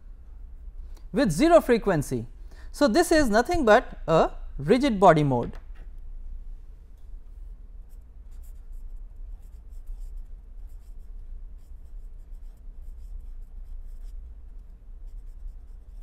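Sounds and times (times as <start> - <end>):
steady low hum: 0.0 - 16.0
pen writing on paper: 8.3 - 16.0.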